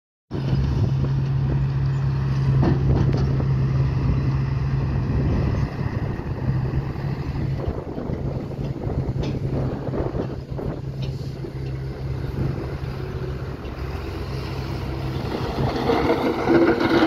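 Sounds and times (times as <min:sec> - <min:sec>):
diesel truck engine running: 0:00.3 - 0:17.0
wind buffeting microphone: 0:00.3 - 0:17.0.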